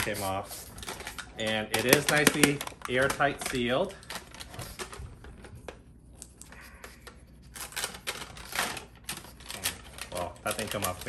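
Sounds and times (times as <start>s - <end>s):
plastic clicking and rattling: 0.8s - 5.8s, 7.6s - 11.0s.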